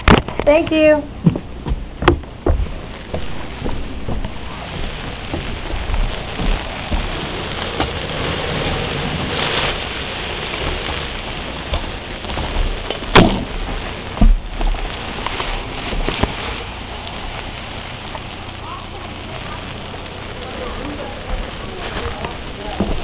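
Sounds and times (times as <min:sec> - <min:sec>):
hose water spraying on wooden deck: 0:00.0 - 0:23.0
loud knock: 0:01.2 - 0:04.3, 0:13.1 - 0:13.5.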